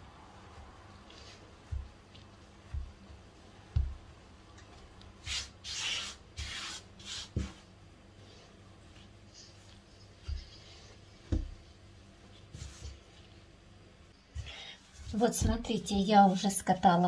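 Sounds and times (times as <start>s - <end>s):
hands rubbing dough on mat: 0.3s - 4.1s, 5.2s - 13.5s, 14.8s - 17.0s
dull thumps of dough pressed: 1.6s - 4.2s, 11.2s - 11.6s.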